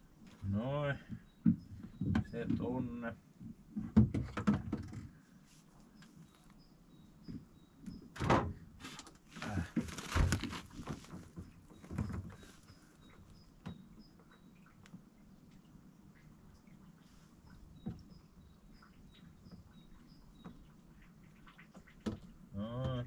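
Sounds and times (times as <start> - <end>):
knocks and bumps in fridge: 3.8 - 5.1, 8.2 - 8.6
faint bird chirps: 5.2 - 8.2, 11.4 - 23.0.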